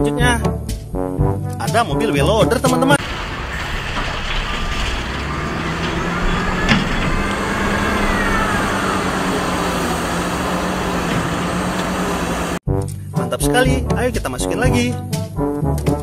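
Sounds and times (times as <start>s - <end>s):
diesel engine under load: 3.0s - 12.6s.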